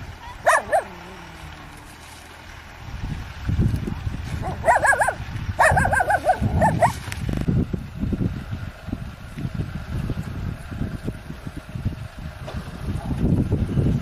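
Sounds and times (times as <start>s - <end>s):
low gusty rumble: 0.0s - 14.0s
dog whining yelps: 0.2s - 1.2s, 4.4s - 7.0s.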